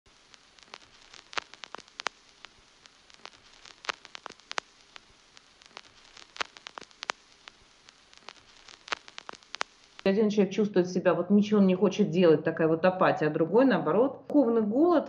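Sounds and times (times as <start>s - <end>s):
crackling pops and clicks: 0.1s - 10.1s
faint hiss: 0.1s - 10.2s.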